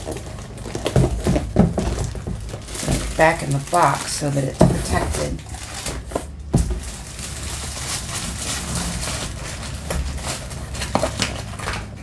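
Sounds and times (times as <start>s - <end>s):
canvas rustling: 0.0s - 12.0s
knocks on cardboard box: 0.8s - 3.1s.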